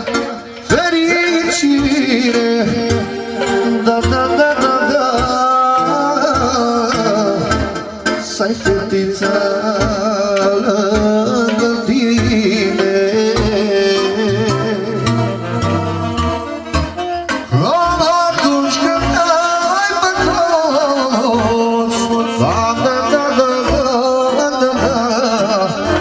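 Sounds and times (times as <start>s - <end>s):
man singing into a microphone: 0.0s - 15.8s, 17.3s - 26.0s
steady beat: 0.0s - 20.4s
saxophone: 13.6s - 19.5s.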